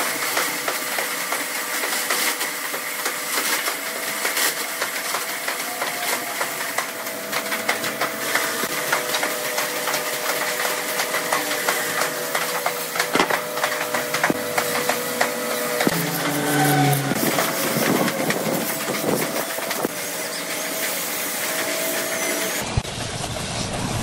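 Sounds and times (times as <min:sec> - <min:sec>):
drilling machine whining: 0:00.0 - 0:22.8.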